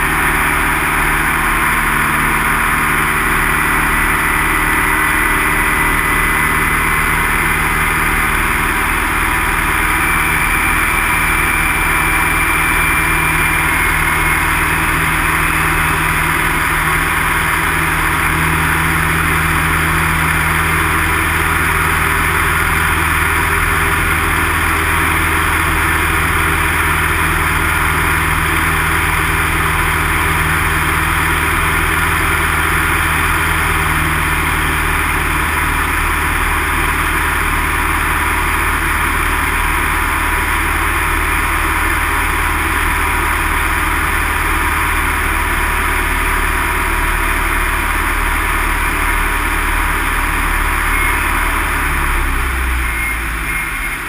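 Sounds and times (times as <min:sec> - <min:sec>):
light aircraft engine in flight: 0:00.0 - 0:54.0.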